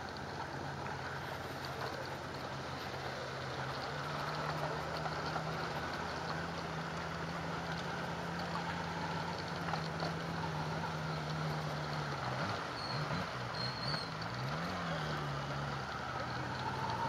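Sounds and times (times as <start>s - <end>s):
motorcycle engine running: 0.0s - 17.0s
wind and road noise: 0.0s - 17.0s.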